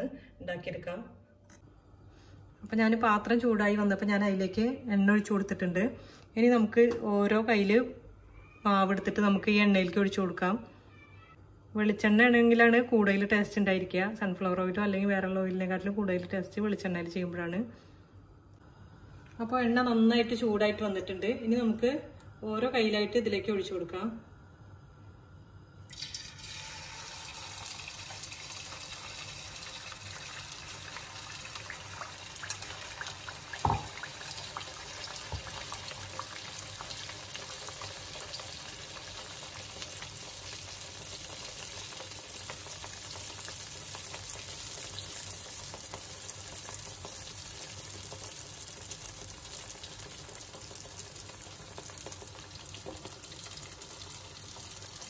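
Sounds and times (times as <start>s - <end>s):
batter sizzling in hot oil: 25.9s - 55.0s.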